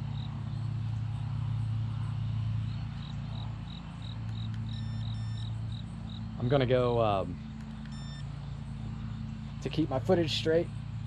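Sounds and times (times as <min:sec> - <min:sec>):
insects chirping: 0:00.0 - 0:06.6, 0:07.4 - 0:10.1
constant low hum: 0:00.0 - 0:11.0
short beeps: 0:04.7 - 0:05.5, 0:07.9 - 0:08.3.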